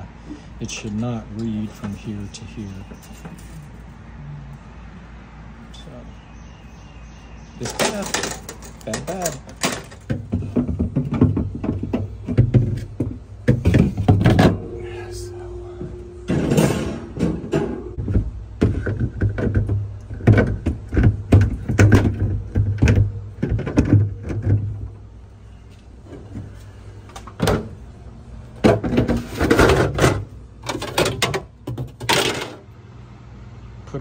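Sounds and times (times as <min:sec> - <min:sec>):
refrigerator low hum: 0:05.7 - 0:34.0
wire shelves clattering: 0:07.6 - 0:15.0, 0:15.8 - 0:18.1, 0:28.6 - 0:32.6.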